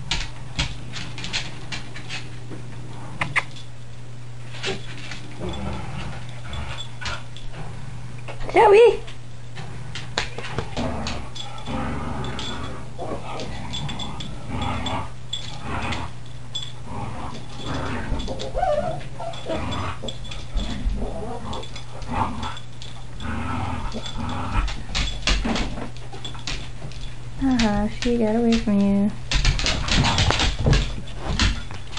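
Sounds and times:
steady low hum: 0.0s - 31.9s
puppy play-growling and whining: 4.6s - 8.6s, 9.7s - 26.6s.

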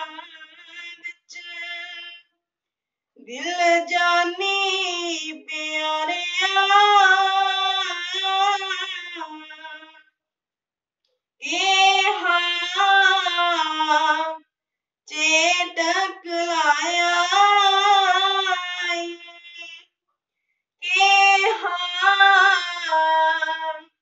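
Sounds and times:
boy singing a hymn unaccompanied: 3.6s - 9.9s, 11.5s - 14.4s, 15.1s - 19.8s, 20.8s - 23.8s.

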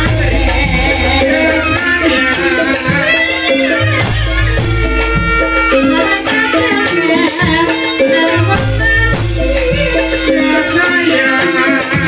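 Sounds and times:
deep low gong stroke: 0.0s - 4.9s
gamelan music: 0.0s - 7.2s.

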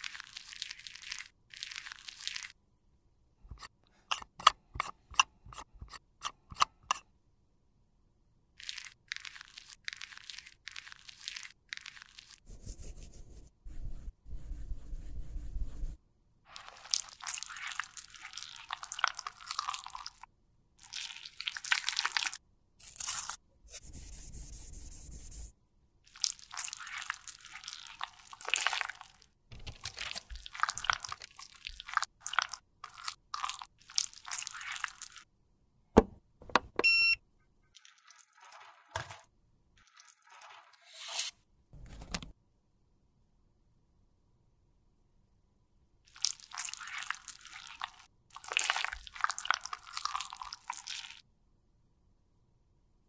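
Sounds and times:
plastic sheet crinkling: 8.6s - 12.5s
spatula scraping liquid: 16.5s - 20.2s, 26.1s - 35.3s, 37.7s - 39.2s, 46.2s - 51.2s.

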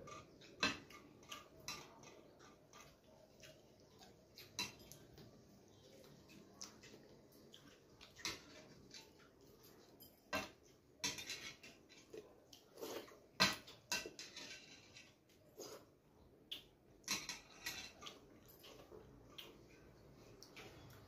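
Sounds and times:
fingers squishing food on metal plate: 0.0s - 21.0s
chewing clicks and smacks: 6.0s - 8.3s, 18.0s - 21.0s.

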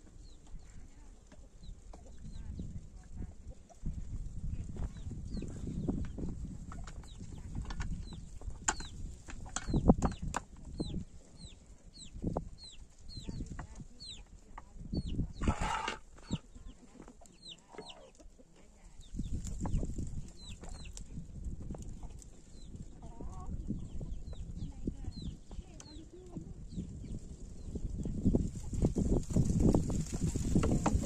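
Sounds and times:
chicks peeping: 0.2s - 31.0s
chicken clucking: 14.9s - 21.0s, 21.8s - 24.4s
low thumps and rustling: 28.3s - 31.0s.

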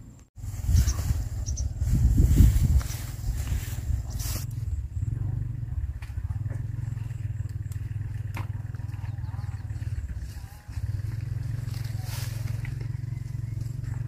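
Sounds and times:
wind buffeting microphone: 0.4s - 6.8s, 8.0s - 14.0s.

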